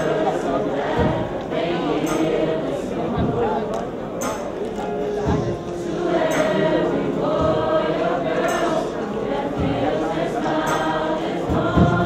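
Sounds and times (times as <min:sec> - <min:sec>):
choir singing over a beat: 0:00.0 - 0:12.0
sharp percussive hits: 0:02.0 - 0:03.5.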